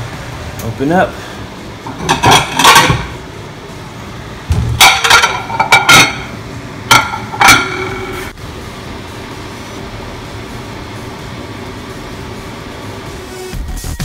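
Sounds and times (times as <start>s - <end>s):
ceramic plates clinking: 1.9s - 3.1s, 4.8s - 8.3s.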